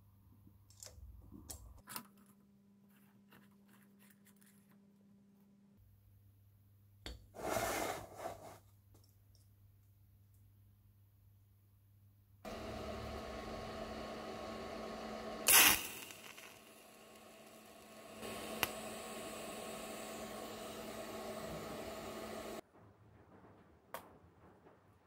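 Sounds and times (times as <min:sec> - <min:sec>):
electric welder buzzing: 0:12.5 - 0:22.6.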